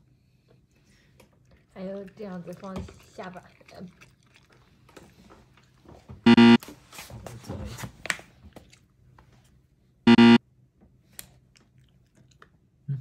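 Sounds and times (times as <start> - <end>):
loud pitched tone: 6.3 - 6.6, 10.1 - 10.4.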